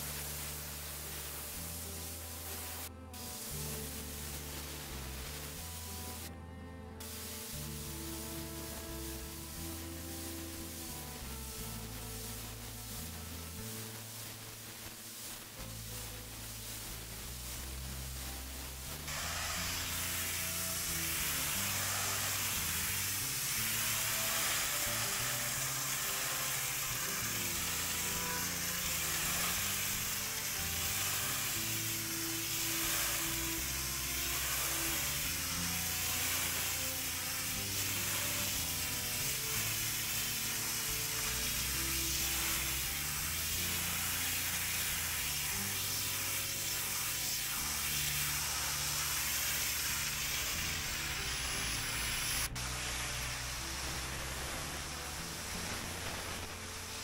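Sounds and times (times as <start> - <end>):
pressure washer spray hissing: 0.0 - 6.3, 7.0 - 57.0
background music: 0.0 - 57.0.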